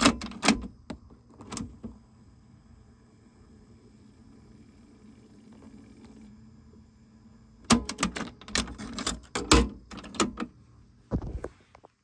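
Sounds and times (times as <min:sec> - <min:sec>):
cassette deck ejecting clicks: 0:00.0 - 0:02.0, 0:07.6 - 0:10.5
cassette knocks and rattles: 0:00.0 - 0:02.0, 0:07.7 - 0:10.5.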